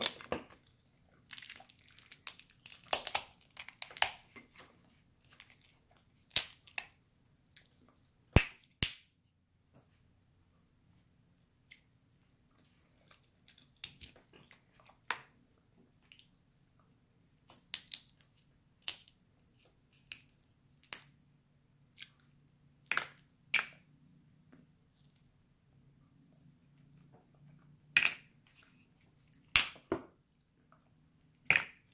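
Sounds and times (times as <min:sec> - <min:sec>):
crab shells cracking by hand: 0:01.3 - 0:04.2, 0:06.3 - 0:06.9, 0:17.6 - 0:18.2, 0:18.8 - 0:19.2, 0:20.0 - 0:21.1.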